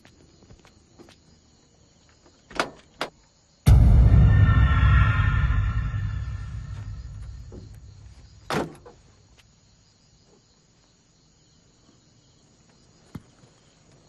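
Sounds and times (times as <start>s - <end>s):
crickets chirping: 0.0s - 14.0s
low rumbling: 3.7s - 8.5s.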